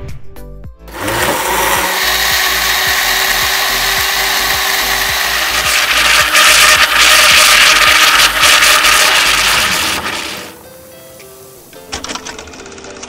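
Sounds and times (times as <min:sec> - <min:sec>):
electric blender motor running: 0:00.9 - 0:10.6.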